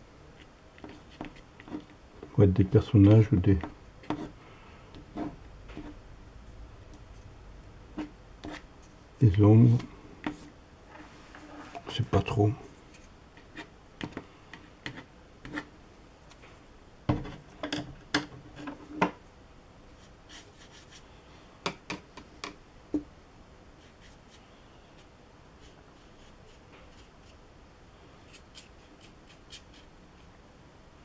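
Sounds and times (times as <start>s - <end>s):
faint room noise: 0.0s - 31.0s.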